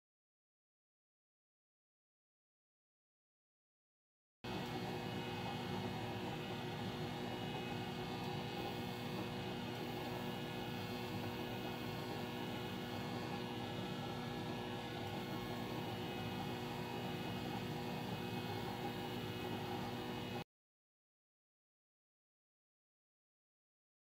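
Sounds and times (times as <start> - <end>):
machine humming: 4.5 - 20.4.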